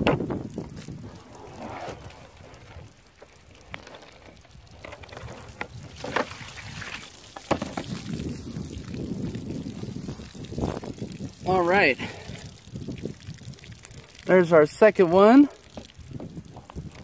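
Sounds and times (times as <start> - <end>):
water pouring onto plastic table: 0.0 - 17.0
plastic jug clicks and knocks: 4.8 - 6.5, 7.3 - 8.2.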